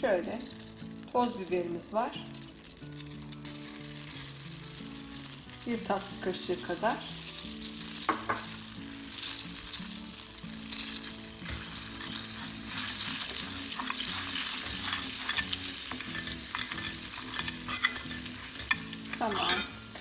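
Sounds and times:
butter sizzling in a pan: 0:00.0 - 0:20.0
metal spoon clicking against pan: 0:14.6 - 0:19.8.

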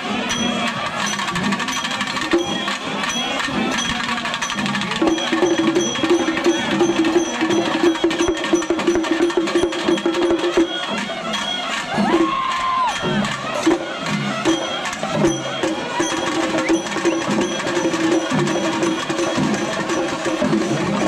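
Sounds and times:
cymbals ringing: 0:00.0 - 0:21.0
fast drum roll: 0:00.0 - 0:21.0
held steady note: 0:00.0 - 0:21.0.

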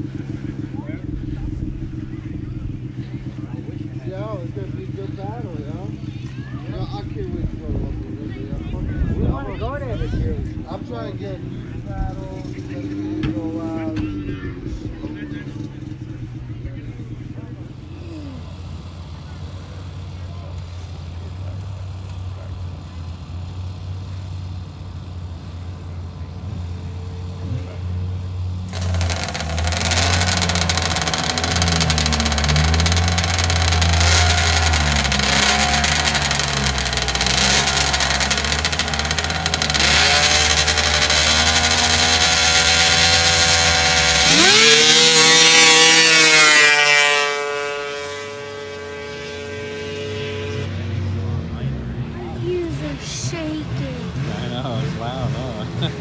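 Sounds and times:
snowmobile engines idling and revving: 0:00.0 - 0:56.0
snowmobile accelerating with rising whine: 0:25.6 - 0:56.0.

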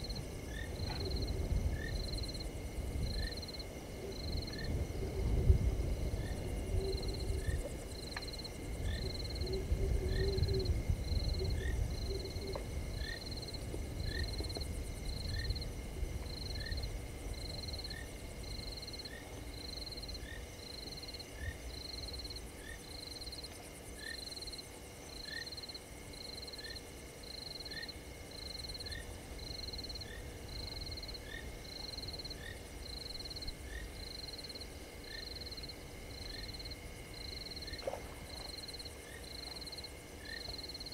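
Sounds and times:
frogs calling: 0:06.2 - 0:14.6.

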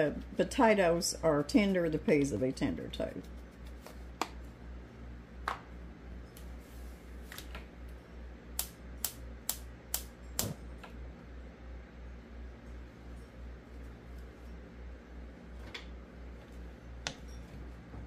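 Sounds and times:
low steady hum: 0:00.0 - 0:18.0
gas burner igniter clicking: 0:08.6 - 0:10.6.

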